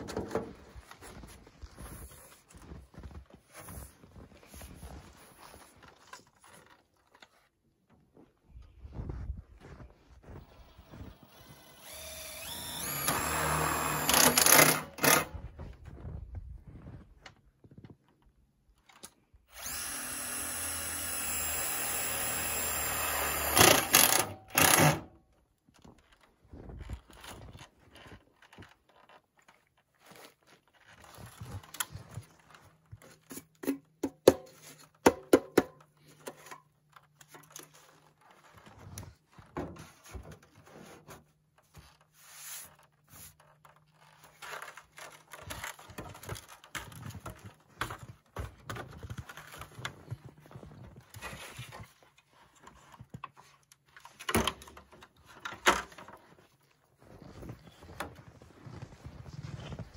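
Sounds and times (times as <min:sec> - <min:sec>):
cordless power drill driving screws: 0:10.6 - 0:15.3, 0:19.5 - 0:25.2.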